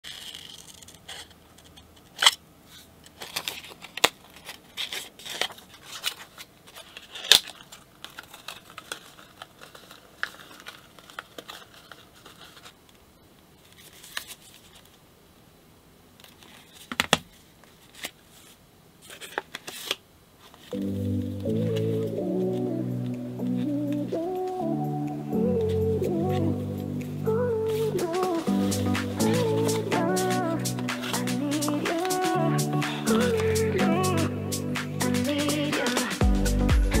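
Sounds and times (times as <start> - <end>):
paper crinkling and rustling: 0.0 - 15.0, 16.2 - 24.8, 25.4 - 34.2
scissors snipping paper: 27.7 - 32.4.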